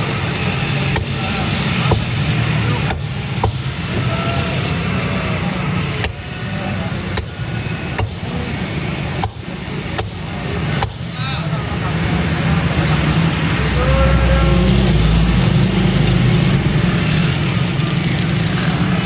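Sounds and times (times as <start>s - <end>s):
road traffic rumble: 0.0s - 19.0s
cleaver chopping on wooden block: 0.9s - 1.2s.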